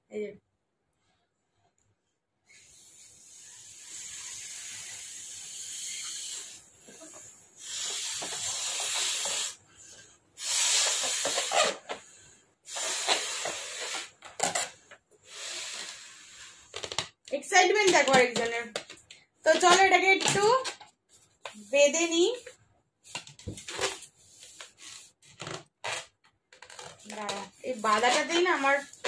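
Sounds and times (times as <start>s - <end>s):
person blowing up a balloon: 2.5s - 14.2s, 15.2s - 17.0s.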